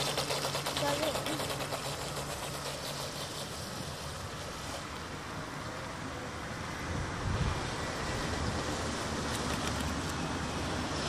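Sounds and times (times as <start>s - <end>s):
distant model boat motor hum: 0.0s - 11.0s
wind buffeting microphone: 6.8s - 8.9s.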